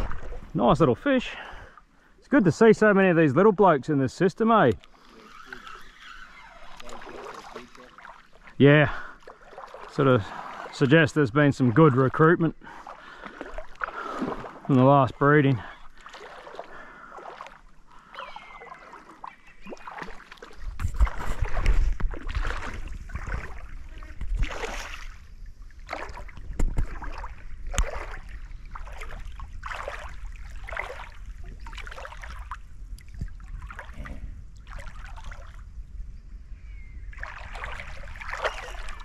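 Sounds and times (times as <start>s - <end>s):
wind rumbling on microphone: 0.0s - 0.8s, 20.5s - 39.0s
water sloshing in creek: 0.0s - 36.0s, 37.0s - 39.0s.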